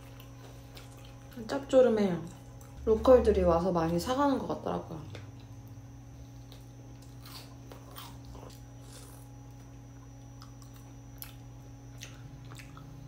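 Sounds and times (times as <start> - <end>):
person chewing crunchy food: 0.0 - 1.5, 5.2 - 13.0
low electrical hum: 0.0 - 13.0.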